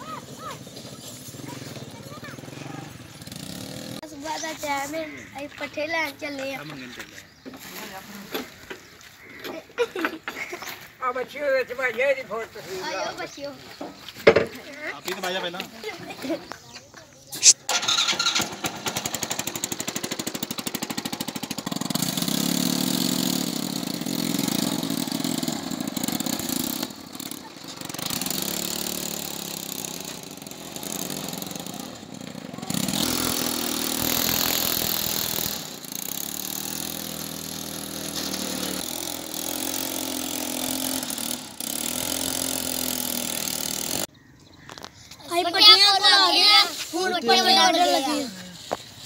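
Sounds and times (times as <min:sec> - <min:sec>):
small tractor engine running: 0:00.0 - 0:04.0, 0:17.7 - 0:44.1.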